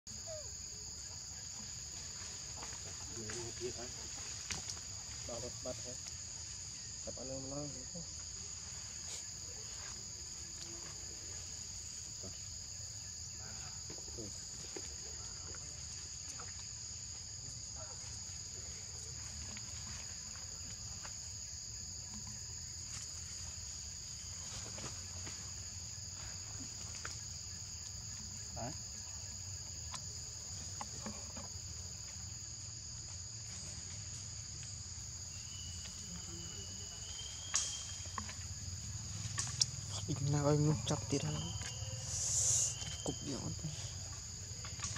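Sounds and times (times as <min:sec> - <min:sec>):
insects buzzing high-pitched: 0:00.1 - 0:44.9.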